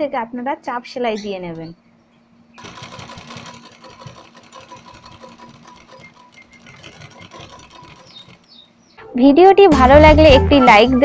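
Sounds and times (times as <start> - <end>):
sewing machine stitching: 2.6 - 8.7.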